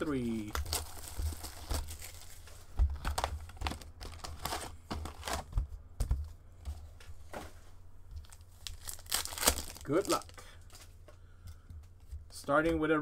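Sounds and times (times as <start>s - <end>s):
card packs crinkling and rustling: 0.0s - 5.6s, 8.2s - 11.0s.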